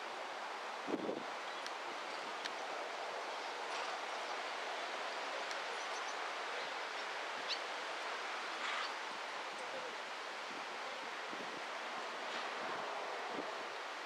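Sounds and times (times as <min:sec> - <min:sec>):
rushing wind: 0:00.0 - 0:03.6.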